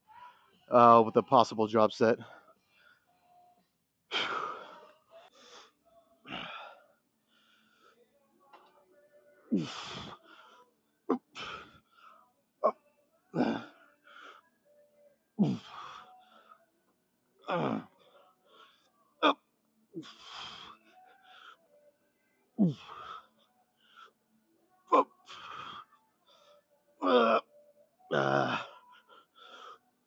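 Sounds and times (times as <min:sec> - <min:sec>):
man grunting and exhaling: 0:06.3 - 0:06.8, 0:09.5 - 0:10.2, 0:11.1 - 0:11.7, 0:13.4 - 0:13.7, 0:15.4 - 0:16.0, 0:17.5 - 0:17.9, 0:22.6 - 0:23.1, 0:27.0 - 0:27.4, 0:28.1 - 0:28.8.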